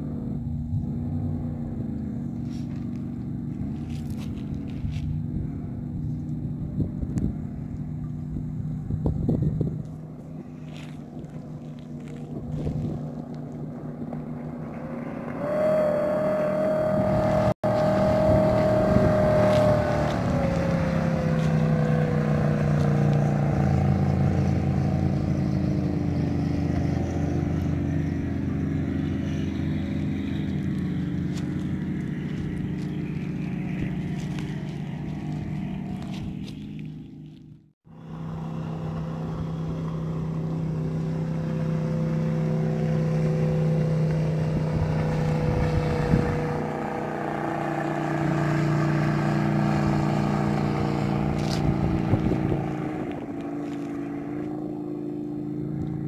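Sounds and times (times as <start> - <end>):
jet boat engine passing: 0.0 - 56.0.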